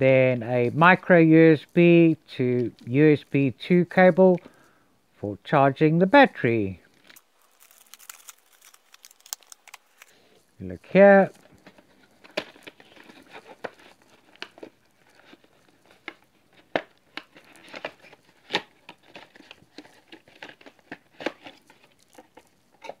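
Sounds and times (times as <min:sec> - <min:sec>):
cardboard rustling and scraping: 0:11.2 - 0:23.0.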